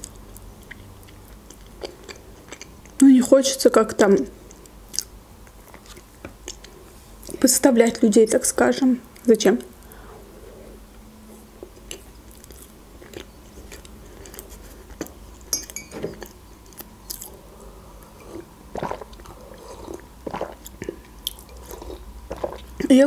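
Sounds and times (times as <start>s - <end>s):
chewing with wet mouth smacks: 0.0s - 3.0s, 4.4s - 7.4s, 11.3s - 15.5s, 16.1s - 22.9s.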